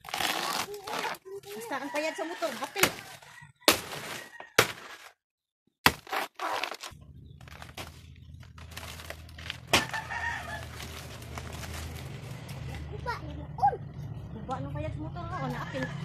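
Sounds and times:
machete chopping plant stalk: 0:03.7 - 0:05.0, 0:05.8 - 0:06.9, 0:09.7 - 0:10.0.

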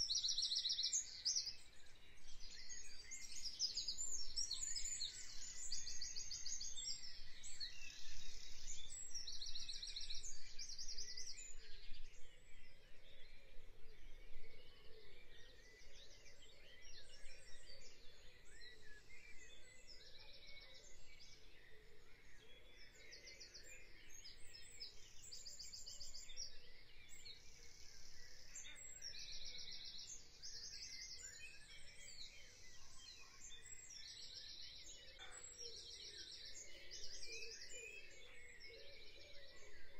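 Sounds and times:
small birds chirping: 0:00.0 - 0:39.9.

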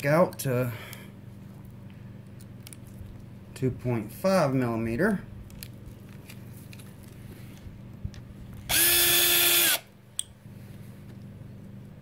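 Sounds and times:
cordless drill spinning: 0:08.7 - 0:09.9.

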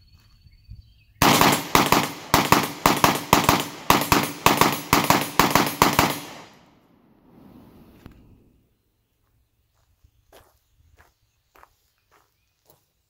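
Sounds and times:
rapid pistol shots: 0:01.2 - 0:06.8.

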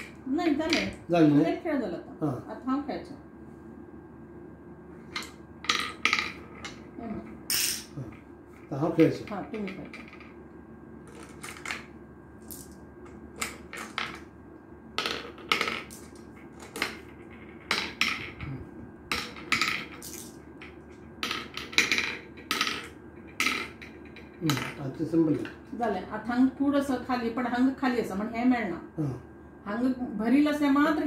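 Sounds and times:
marbles clicking into wooden board: 0:19.1 - 0:24.8.

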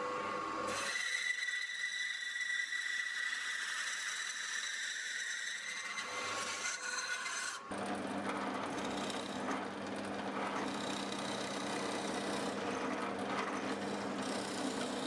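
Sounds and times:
drill press boring wood: 0:00.1 - 0:15.0
bandsaw running: 0:05.9 - 0:15.0.

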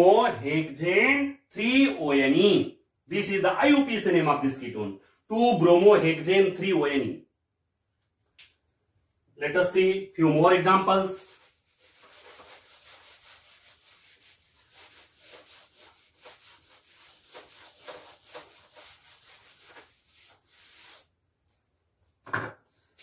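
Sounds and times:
duster rubbing on whiteboard: 0:11.3 - 0:21.2.

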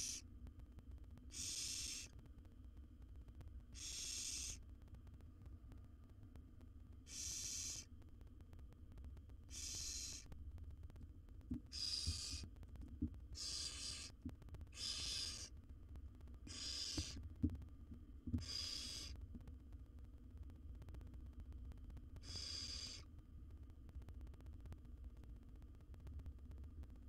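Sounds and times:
owl nestlings hissing: 0:00.0 - 0:00.2, 0:01.3 - 0:02.1, 0:03.8 - 0:04.6, 0:07.1 - 0:07.9, 0:09.5 - 0:10.3, 0:11.7 - 0:12.5, 0:13.4 - 0:15.5, 0:16.5 - 0:17.2, 0:18.4 - 0:19.2, 0:22.2 - 0:23.1.

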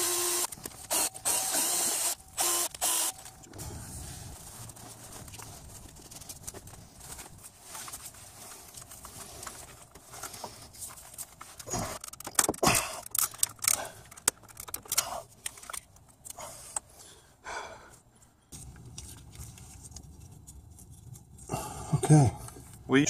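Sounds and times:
metal tool clicking and scraping: 0:11.9 - 0:16.9.

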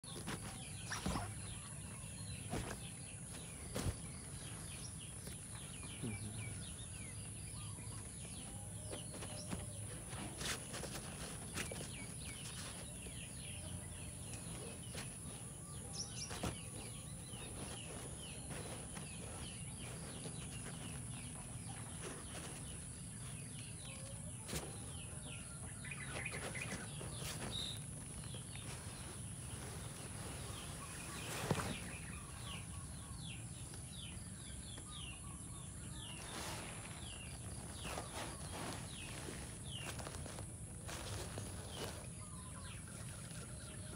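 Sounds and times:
small birds chirping: 0:00.0 - 0:43.9
kitten rustling on hammock: 0:08.1 - 0:32.7, 0:35.9 - 0:42.5.

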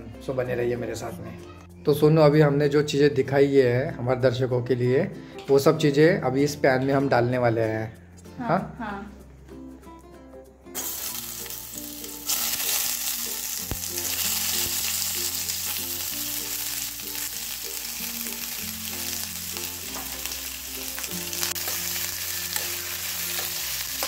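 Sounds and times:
onions sizzling in hot oil: 0:10.8 - 0:24.0.

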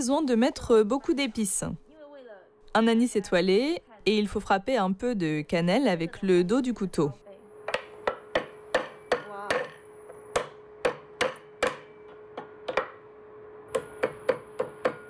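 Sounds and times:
cleaver chopping on wooden board: 0:07.7 - 0:13.0.

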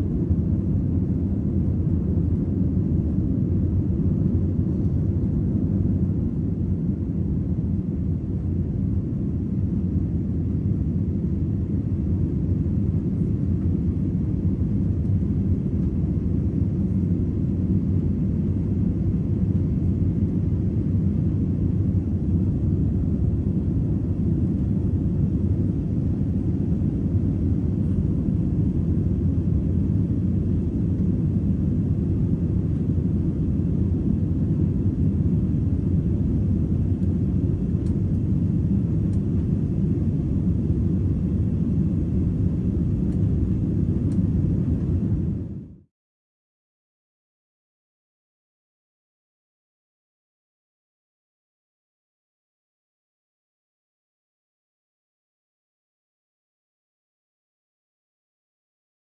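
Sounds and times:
airliner cabin engine rumble: 0:00.0 - 0:45.9.

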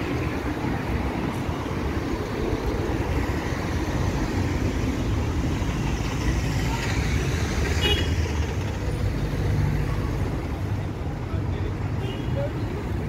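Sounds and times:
city traffic rumble: 0:00.0 - 0:13.0.

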